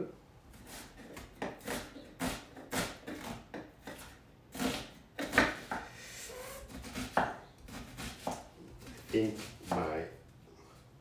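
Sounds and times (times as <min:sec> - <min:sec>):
knife dicing on wooden board: 0:01.0 - 0:05.8.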